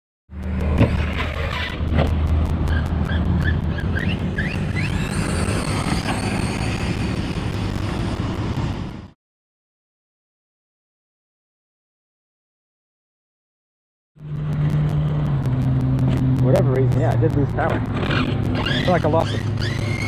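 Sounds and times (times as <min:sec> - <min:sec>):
low rumble: 0:00.3 - 0:09.2, 0:14.2 - 0:20.0
electric motor whining: 0:14.2 - 0:20.0.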